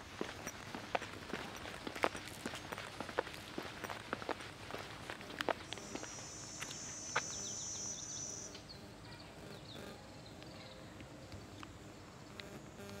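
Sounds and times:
faint footsteps on pavement: 0.0 - 13.0
cicada buzzing: 5.7 - 10.0.

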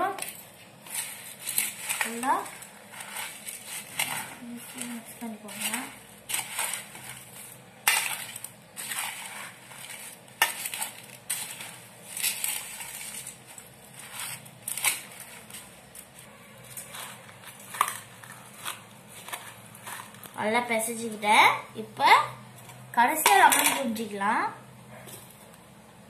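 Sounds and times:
puffed rice rustling and crunching: 0.0 - 20.5.

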